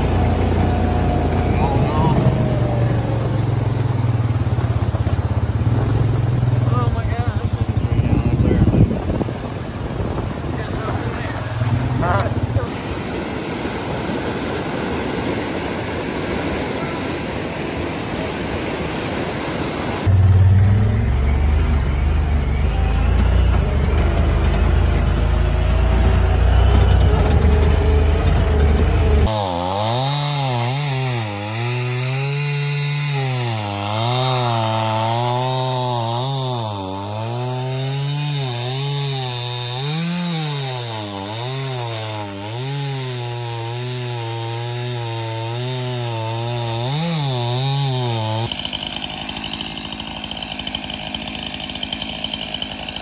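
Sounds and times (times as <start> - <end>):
deep loud rumble: 0.0 - 12.6
small engine revving: 0.0 - 18.0, 19.4 - 53.0.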